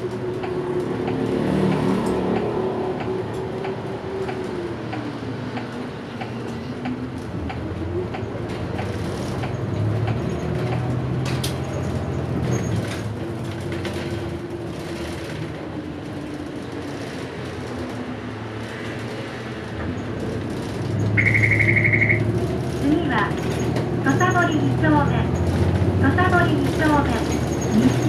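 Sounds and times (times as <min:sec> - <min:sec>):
bus engine running: 0:00.0 - 0:28.0
high pulsing electronic tone: 0:21.2 - 0:22.3.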